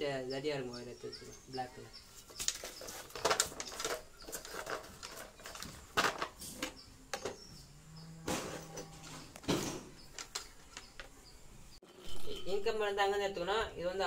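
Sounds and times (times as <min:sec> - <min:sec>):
electrical wire rustling and clicking: 0:02.2 - 0:07.6, 0:08.3 - 0:11.3.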